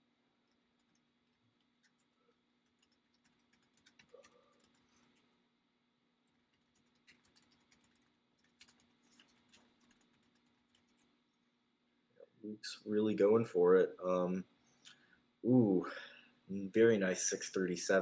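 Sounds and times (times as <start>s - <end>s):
low steady hum: 0.0s - 18.0s
speed cubes clicking: 2.6s - 5.1s, 6.5s - 11.1s.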